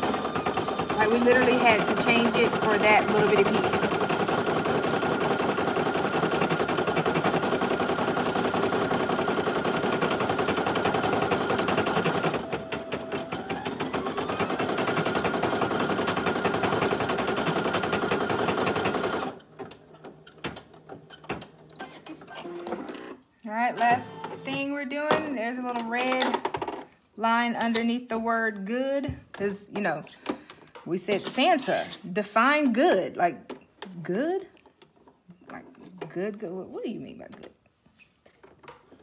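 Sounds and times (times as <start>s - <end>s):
embroidery machine stitching: 0.0s - 23.1s.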